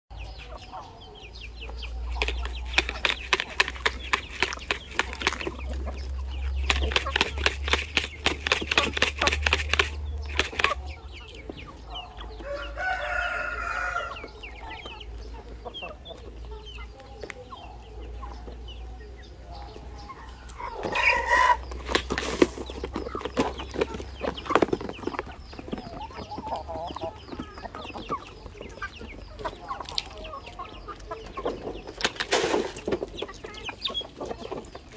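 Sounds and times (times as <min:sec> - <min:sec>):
chickens clucking: 0:00.1 - 0:34.9
fast patter of clicks: 0:02.1 - 0:11.0, 0:21.7 - 0:26.6, 0:31.9 - 0:33.1
pecking clicks: 0:02.2 - 0:05.6, 0:06.6 - 0:10.9
rooster crowing: 0:12.4 - 0:14.3.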